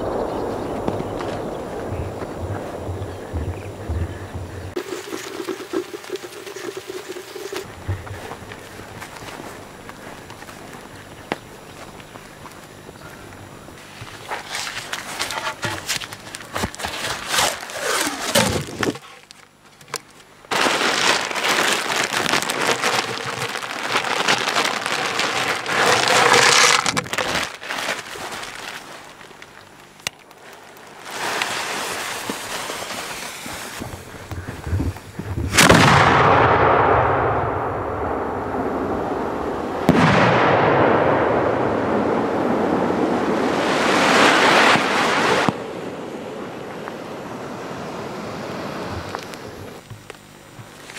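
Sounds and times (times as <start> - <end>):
rustling and handling noises: 13.8 - 35.2
firework rushing hiss: 31.0 - 36.3
firework bangs: 35.4 - 42.8.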